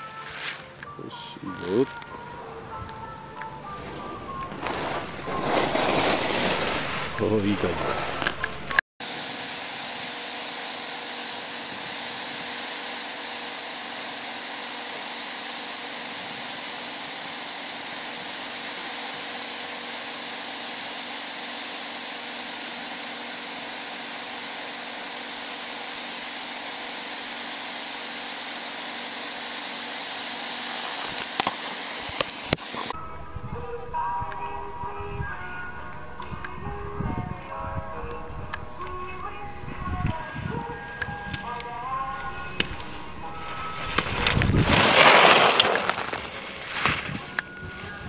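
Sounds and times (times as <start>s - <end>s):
blower hissing: 0.0s - 33.0s, 35.9s - 48.0s
faint hum: 32.7s - 48.0s.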